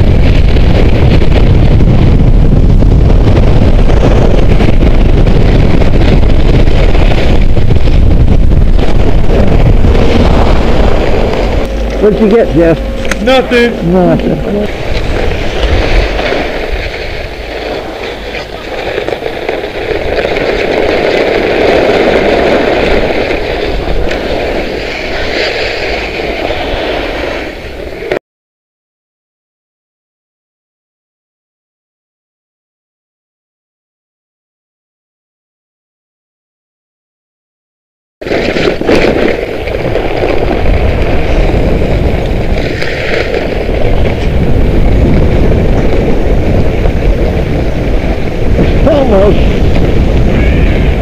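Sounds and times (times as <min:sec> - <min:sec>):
wind rushing over microphone: 0:00.0 - 0:28.2, 0:38.2 - 0:51.0
skis scraping over snow: 0:00.2 - 0:28.2, 0:38.2 - 0:51.0.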